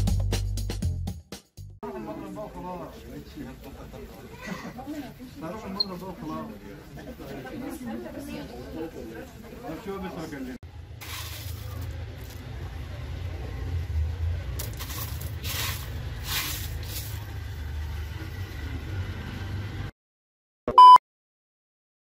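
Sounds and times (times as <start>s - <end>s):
hand scraping through hailstones: 11.0s - 12.4s, 14.6s - 17.4s
loud beep: 20.7s - 21.0s.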